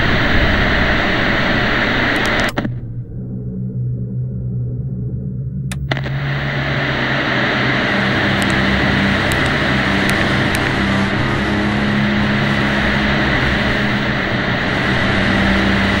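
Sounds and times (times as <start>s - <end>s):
tv static hiss: 0.0s - 2.8s, 5.8s - 16.0s
low steady hum: 0.0s - 16.0s
television switch clicks: 8.3s - 8.6s, 9.2s - 10.7s.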